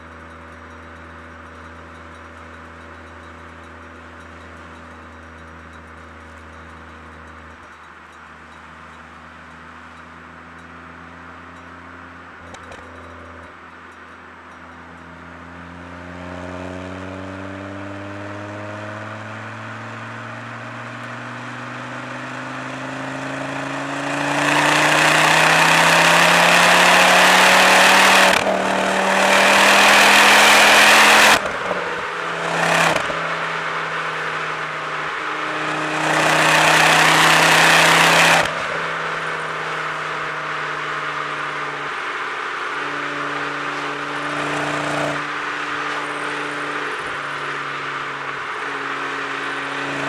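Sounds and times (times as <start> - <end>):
car engine accelerating: 14.9 - 50.0.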